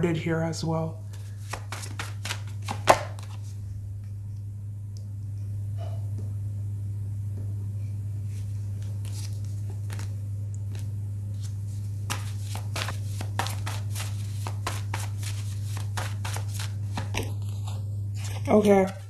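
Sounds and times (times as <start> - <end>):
steady low hum: 0.0 - 19.0
cards being shuffled: 1.1 - 3.6, 8.3 - 19.0.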